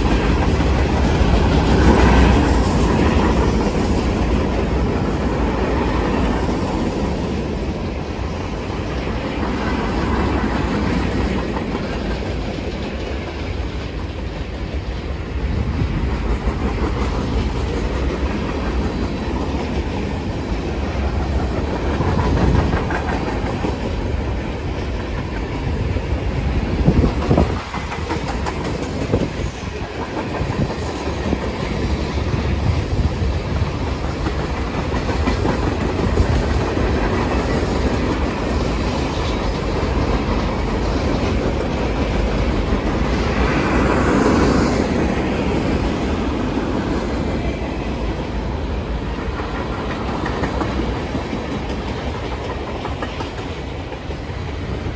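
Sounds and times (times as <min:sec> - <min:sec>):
freight train rumbling past: 0:00.0 - 0:54.9
wheels clicking over rail joints: 0:00.0 - 0:54.9.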